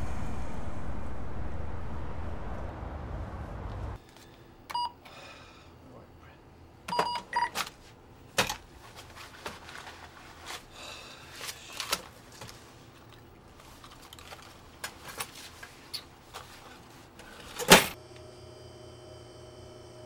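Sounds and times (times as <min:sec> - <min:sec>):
low traffic rumble: 0:00.0 - 0:04.0
cash register key beeps: 0:04.7 - 0:05.0, 0:06.9 - 0:07.6
cash drawer clicks and rattles: 0:17.2 - 0:18.0.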